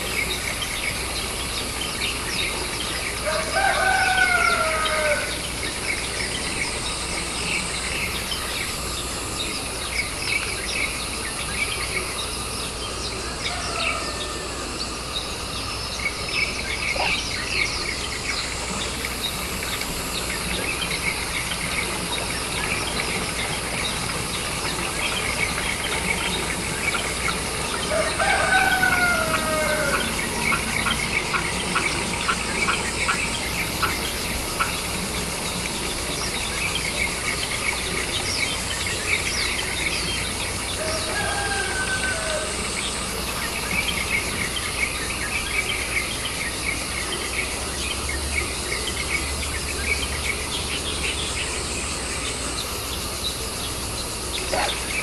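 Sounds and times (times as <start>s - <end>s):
small birds chirping: 0.0s - 55.0s
rooster crowing: 3.2s - 5.6s, 13.2s - 14.9s, 26.3s - 32.3s, 40.7s - 43.0s.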